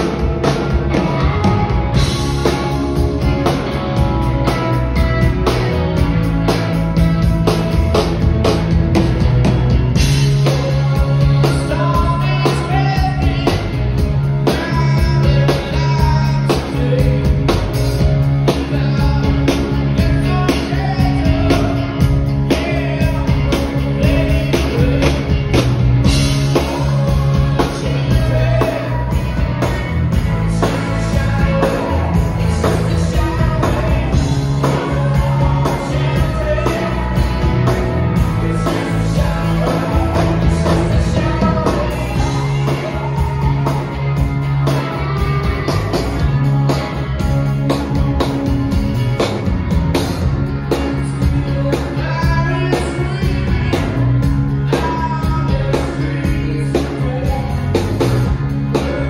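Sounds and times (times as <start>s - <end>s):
bass guitar: 0.0s - 59.0s
drum kit: 0.0s - 59.0s
electric guitar: 0.0s - 59.0s
man singing: 10.0s - 44.1s, 50.7s - 59.0s.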